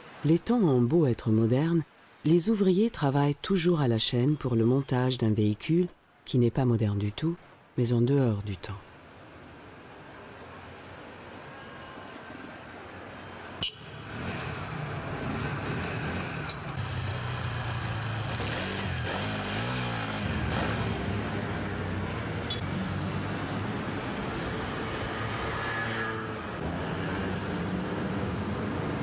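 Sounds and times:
motor scooter engines running: 13.8 - 29.0.

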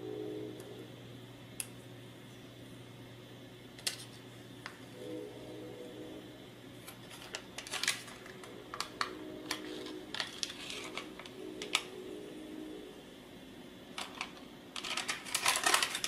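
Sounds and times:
protective paper peeling crackles: 6.9 - 11.9, 14.0 - 16.0.

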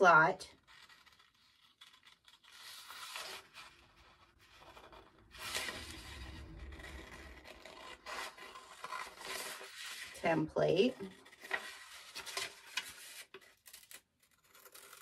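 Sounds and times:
scissors cutting paper: 0.5 - 5.8, 10.8 - 15.0
paper rustling: 0.6 - 10.2, 11.0 - 14.0.

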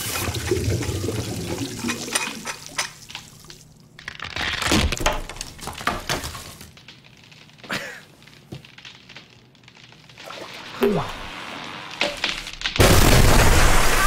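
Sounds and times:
water gushing from a faucet: 0.0 - 3.6
ceiling plaster cracking: 1.8 - 14.0.

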